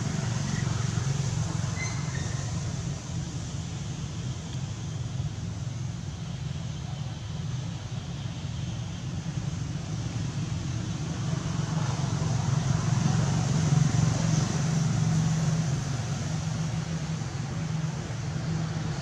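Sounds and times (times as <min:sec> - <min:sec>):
passing vehicle engine hum: 0:00.0 - 0:19.0.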